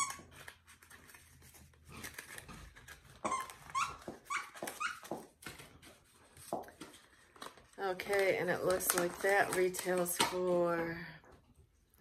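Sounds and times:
dog squeaking: 0.0s - 0.3s, 3.2s - 5.2s.

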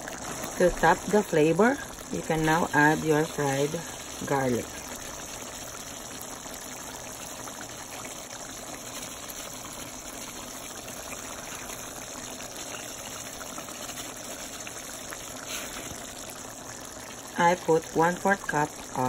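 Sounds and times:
stew bubbling in pot: 0.0s - 19.0s.

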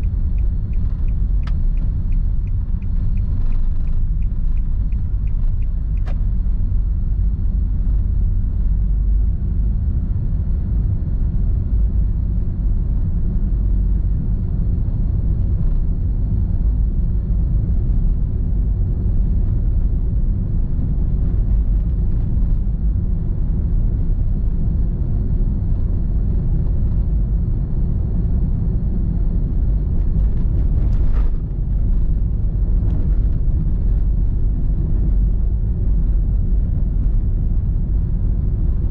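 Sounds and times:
light ticks: 0.0s - 6.3s
car road and engine rumble: 0.0s - 38.9s.

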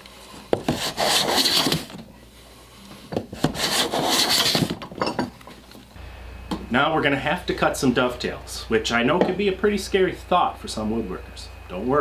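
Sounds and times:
hand plane scraping wood: 0.6s - 2.0s, 3.4s - 4.8s.

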